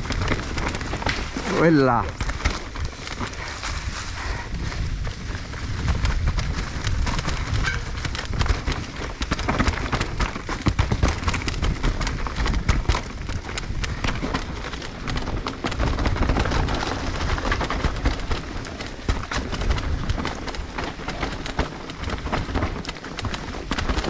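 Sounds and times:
tyres crunching dry leaves: 0:00.0 - 0:04.5
bike rattling over bumps: 0:00.0 - 0:24.0
wind rumble on microphone: 0:00.0 - 0:24.0.

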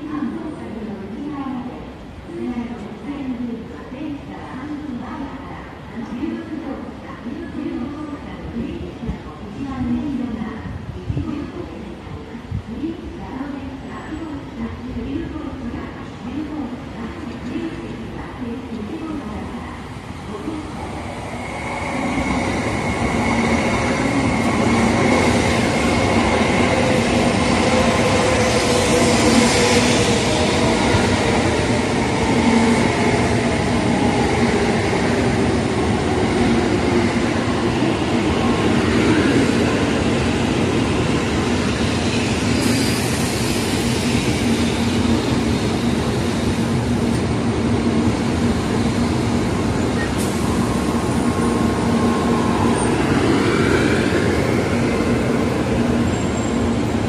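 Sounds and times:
train rumbling past: 0:19.6 - 0:57.0.

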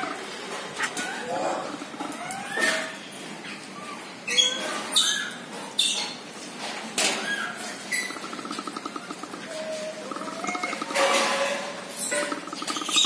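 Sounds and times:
monkey squeaks and squeals: 0:00.8 - 0:06.2, 0:07.2 - 0:11.1, 0:11.9 - 0:13.0
fast buzzing trill: 0:12.2 - 0:13.0.

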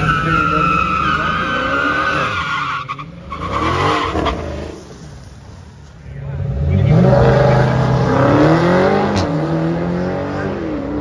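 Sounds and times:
tyres squealing: 0:00.0 - 0:04.6
car engine revving: 0:06.2 - 0:11.0.

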